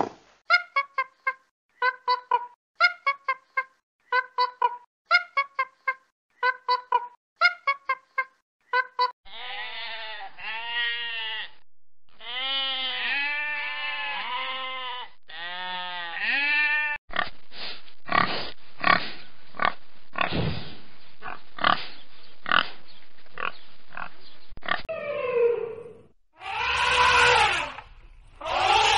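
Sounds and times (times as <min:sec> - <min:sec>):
sheep bleating: 0:09.3 - 0:11.6, 0:12.2 - 0:17.0, 0:28.4 - 0:28.9
pigs grunting: 0:18.1 - 0:20.4, 0:21.2 - 0:22.8.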